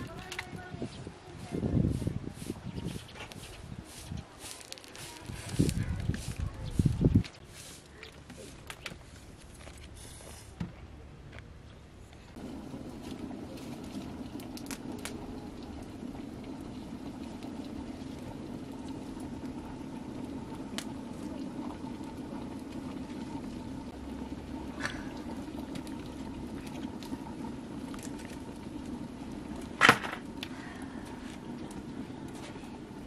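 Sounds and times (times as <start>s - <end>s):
fire crackles: 0.0s - 0.9s, 3.3s - 10.5s, 12.3s - 33.0s
wood fire rushing: 12.4s - 33.0s.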